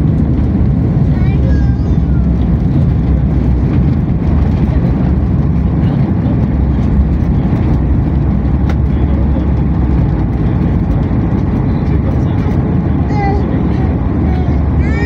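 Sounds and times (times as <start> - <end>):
airplane cabin low rumble: 0.0 - 15.0.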